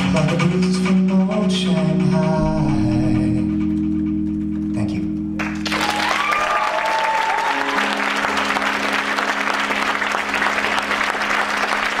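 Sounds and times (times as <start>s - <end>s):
band holding final notes: 0.0s - 12.0s
audience applauding: 5.4s - 12.0s.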